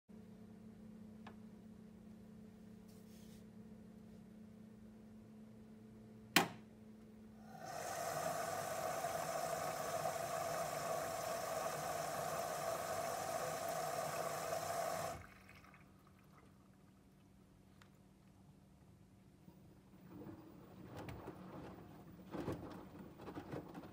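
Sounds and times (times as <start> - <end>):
water rushing into washing machine: 7.4 - 16.9.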